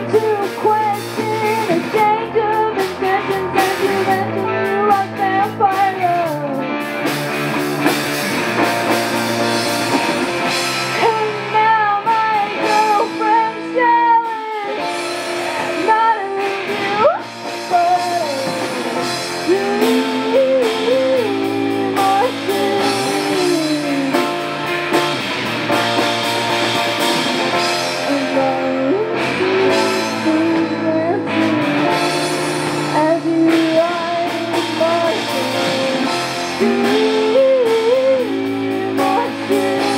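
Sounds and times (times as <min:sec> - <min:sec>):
woman singing: 0:00.0 - 0:06.7, 0:10.9 - 0:24.4, 0:27.9 - 0:32.2, 0:32.8 - 0:39.9
electric guitar chords: 0:00.0 - 0:39.9.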